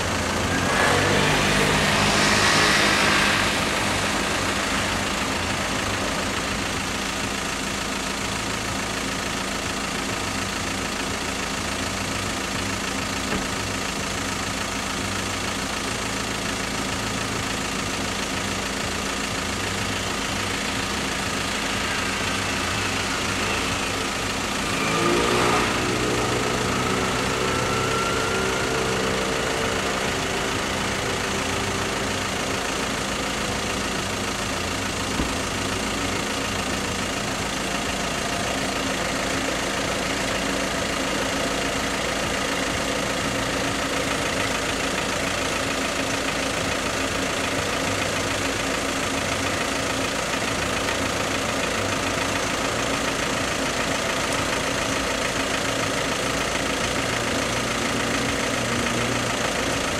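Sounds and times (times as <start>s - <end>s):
car engine idling: 0.0s - 59.9s
second engine hum: 0.0s - 59.9s
vehicle passing: 0.6s - 6.4s.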